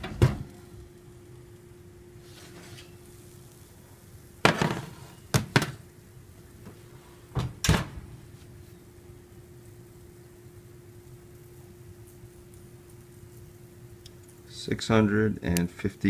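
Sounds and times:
kitchen knocks and clunks: 0.0 - 0.5, 4.4 - 5.8, 7.4 - 8.1
faint steady hum: 0.0 - 16.0.

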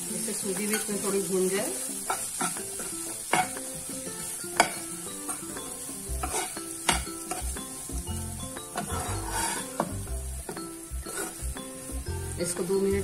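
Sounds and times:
dry roasting sizzle: 0.0 - 13.0
spoon scraping frying pan: 0.2 - 12.6
spoon clicking on pan: 4.5 - 7.5.

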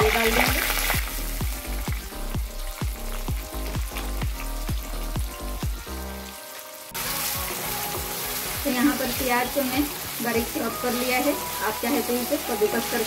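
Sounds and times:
music with thumping beat: 0.0 - 6.2, 7.0 - 10.8
onions sizzling in hot oil: 0.0 - 13.0.

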